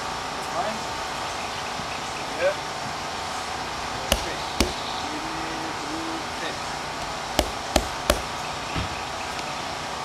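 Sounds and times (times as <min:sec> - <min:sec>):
hands slapping windshield glass: 0:04.1 - 0:04.8, 0:07.4 - 0:08.3.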